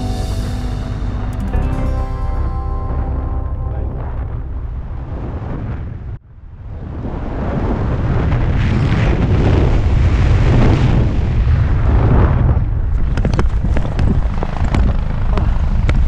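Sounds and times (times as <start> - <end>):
wind buffeting microphone: 4.4 - 16.0.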